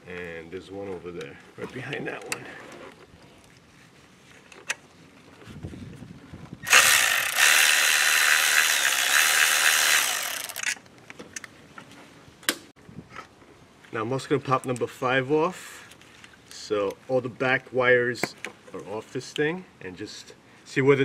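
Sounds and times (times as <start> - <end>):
electric ratchet motor whine: 6.7 - 10.7.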